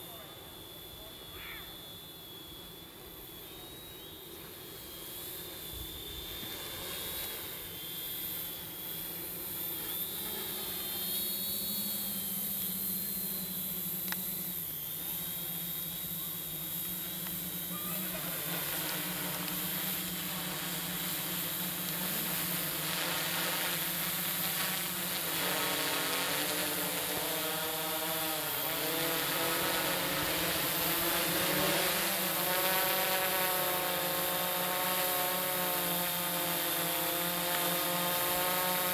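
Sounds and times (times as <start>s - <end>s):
drone propellers buzzing: 0.0s - 38.9s.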